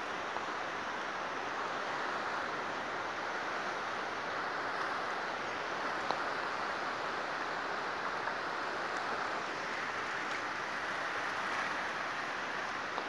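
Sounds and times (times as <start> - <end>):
river water rushing: 0.0 - 13.0.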